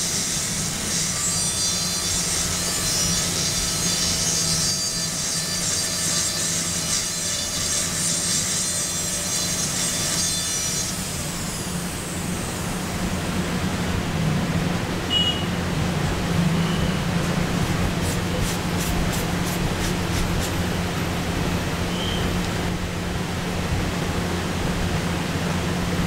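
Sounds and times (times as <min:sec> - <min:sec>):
dental drill whining: 0:00.0 - 0:13.1
steady low hum: 0:10.0 - 0:26.0.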